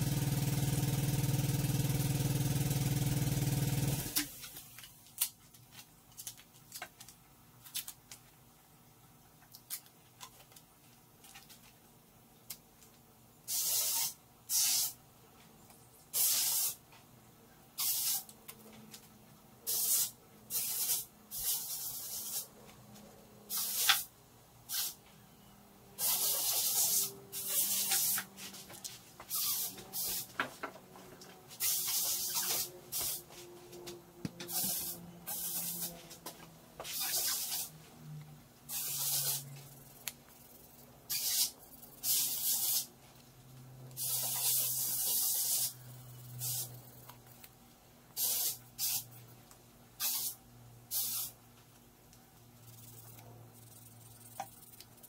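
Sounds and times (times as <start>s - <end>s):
hissing spray bursts: 13.5s - 15.0s, 16.1s - 16.8s, 17.8s - 18.3s, 19.7s - 22.5s, 23.5s - 24.1s, 24.7s - 25.0s, 26.0s - 28.5s, 29.3s - 30.3s, 31.5s - 33.2s, 34.5s - 36.0s, 36.9s - 37.7s, 38.7s - 39.5s, 41.1s - 42.9s, 44.0s - 45.8s, 46.4s - 46.8s, 48.2s - 49.1s, 50.0s - 51.4s.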